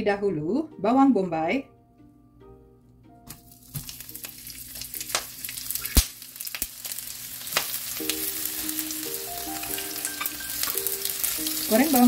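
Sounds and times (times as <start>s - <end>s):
onion sizzling in hot oil: 3.3s - 12.0s.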